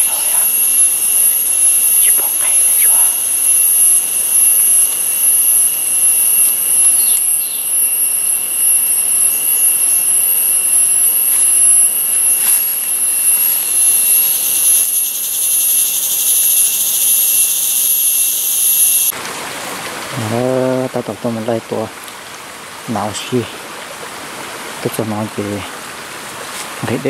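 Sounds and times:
insect chorus drone: 0:00.0 - 0:19.2.

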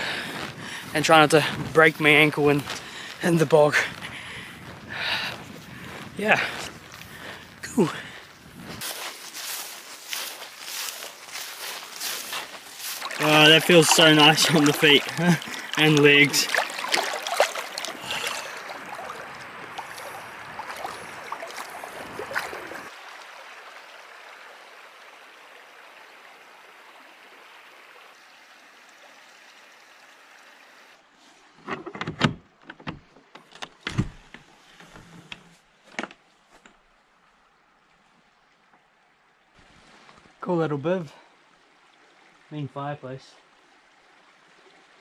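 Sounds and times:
stream water splashing around feet: 0:00.0 - 0:29.4.

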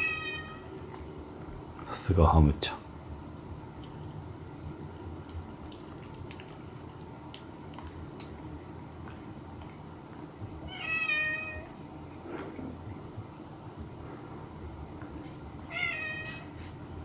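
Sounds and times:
cat meowing: 0:00.0 - 0:00.7, 0:10.7 - 0:11.7, 0:15.7 - 0:16.5.

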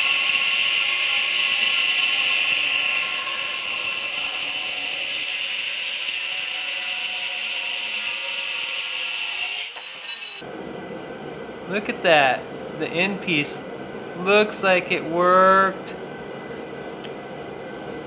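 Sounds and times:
angle grinder cutting steel: 0:00.0 - 0:10.4.

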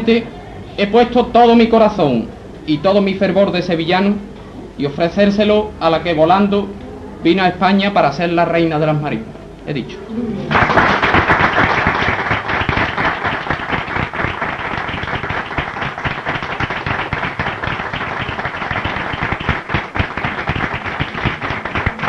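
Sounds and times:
audience applauding: 0:10.4 - 0:22.0.

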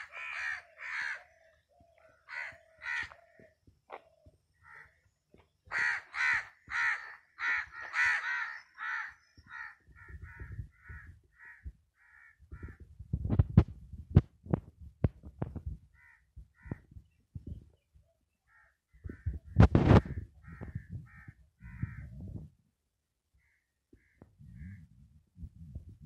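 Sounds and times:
crows cawing: 0:00.0 - 0:05.1, 0:05.7 - 0:12.8, 0:16.0 - 0:16.9, 0:18.5 - 0:19.4, 0:20.0 - 0:22.1, 0:23.4 - 0:24.8.

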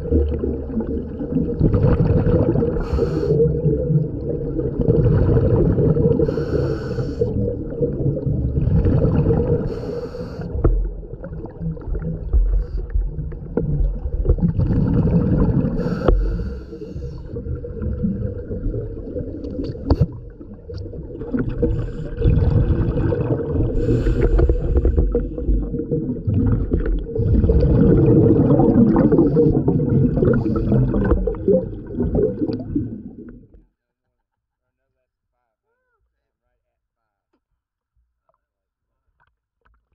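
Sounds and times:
gurgling exhaust bubbles: 0:00.0 - 0:16.6, 0:17.2 - 0:33.5
low water rumble: 0:00.0 - 0:33.8
diver inhaling through regulator: 0:02.6 - 0:03.7, 0:06.0 - 0:07.5, 0:09.5 - 0:10.7, 0:15.7 - 0:17.5, 0:21.6 - 0:22.5, 0:23.6 - 0:25.7, 0:28.8 - 0:31.4.

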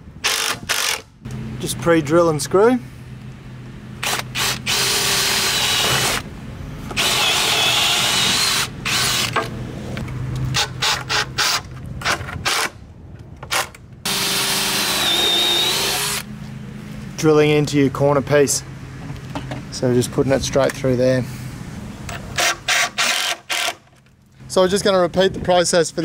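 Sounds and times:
cordless drill boring into wood: 0:00.2 - 0:01.0, 0:04.0 - 0:06.2, 0:07.0 - 0:09.4, 0:14.1 - 0:16.3, 0:22.4 - 0:23.8
screw being driven: 0:06.9 - 0:09.5, 0:13.5 - 0:16.2, 0:22.3 - 0:23.8.

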